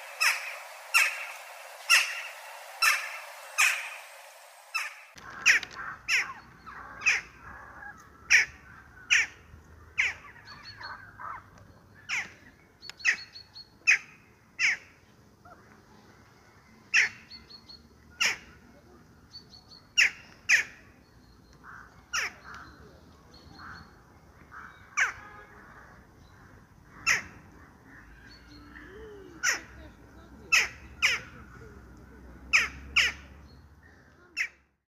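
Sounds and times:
jackdaws calling: 0.0s - 9.4s, 24.5s - 25.2s, 26.9s - 28.6s, 29.4s - 29.8s, 30.5s - 31.4s.

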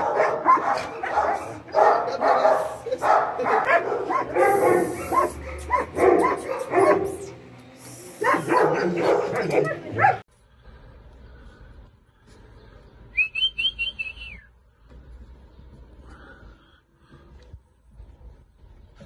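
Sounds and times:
dog barking and yipping: 0.0s - 7.3s, 8.2s - 10.2s.

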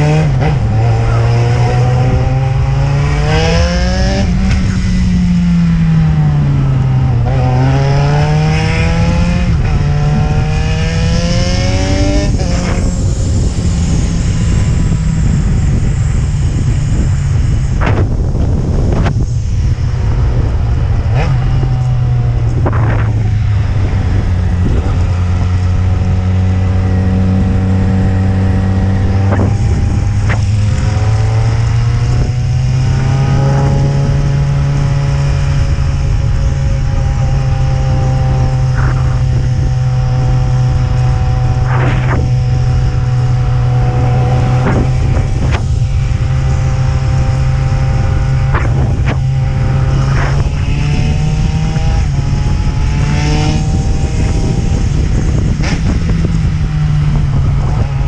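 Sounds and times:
motorcycle engine running: 0.0s - 58.0s
road and wind noise: 0.0s - 58.0s.

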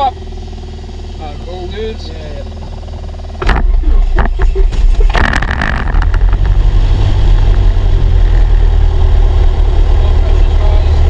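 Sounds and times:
aircraft engine idling: 0.0s - 6.7s.

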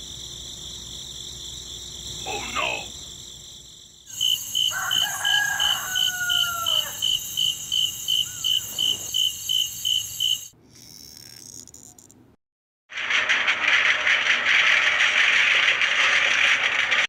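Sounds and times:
crickets chirping: 0.0s - 12.1s
rooster crowing: 4.1s - 7.3s.

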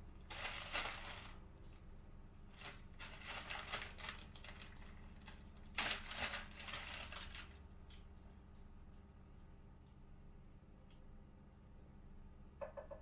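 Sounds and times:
rustling at refrigerator: 0.0s - 9.6s.

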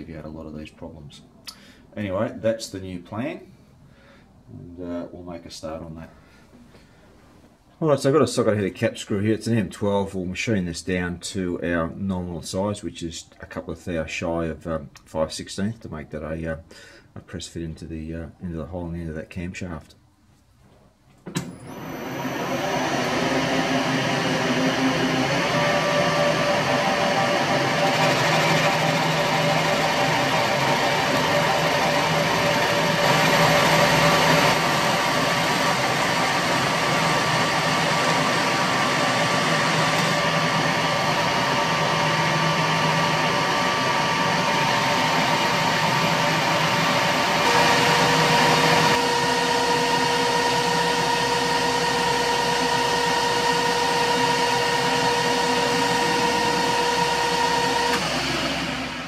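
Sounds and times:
metal lathe cutting with whine: 21.6s - 59.0s.

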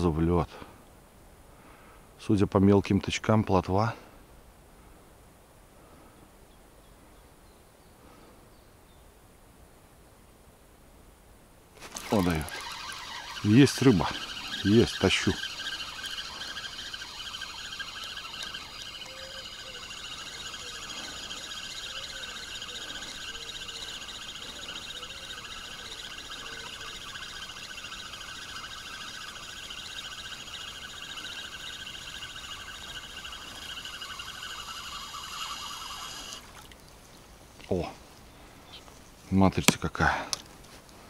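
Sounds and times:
fishing reel whirring: 11.8s - 36.6s.

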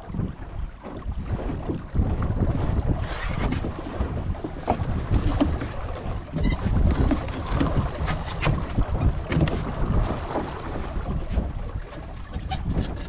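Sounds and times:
water slapping boat hull: 0.0s - 13.0s
wind buffeting microphone: 0.0s - 13.0s.

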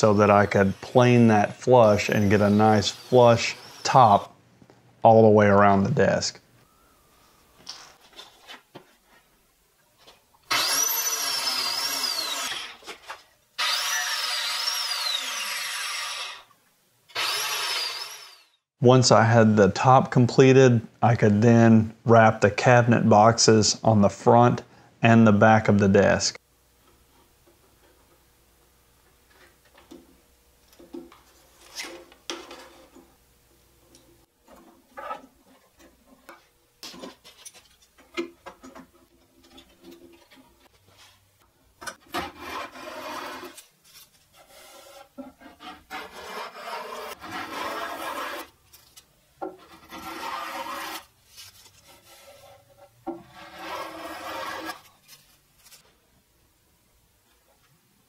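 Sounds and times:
hand plane scraping wood: 42.1s - 43.6s, 44.4s - 48.6s, 49.6s - 51.1s, 51.8s - 54.9s.

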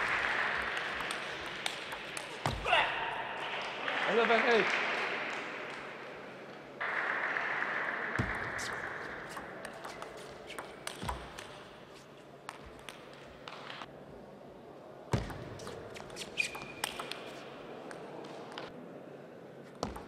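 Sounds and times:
crowd applause: 0.0s - 2.5s, 3.3s - 6.1s, 6.8s - 9.3s.

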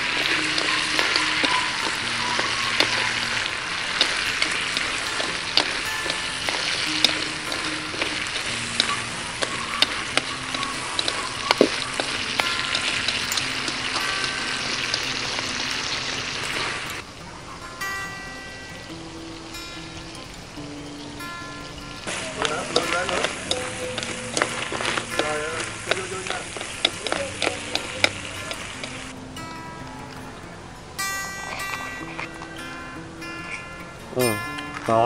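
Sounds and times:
chopsticks clicking against pan: 0.0s - 17.0s, 18.9s - 29.2s
sauce pouring: 0.0s - 17.1s, 18.8s - 29.1s
crabs sizzling in a wok: 0.0s - 30.2s.

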